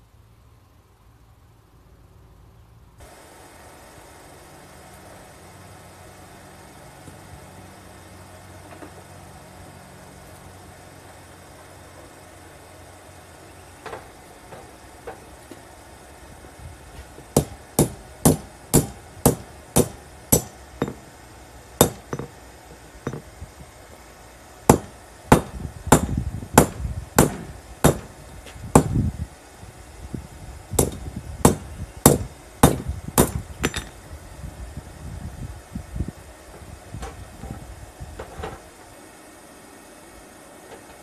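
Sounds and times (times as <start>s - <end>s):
hammer striking steel anvil: 17.4s - 21.1s, 21.8s - 22.3s.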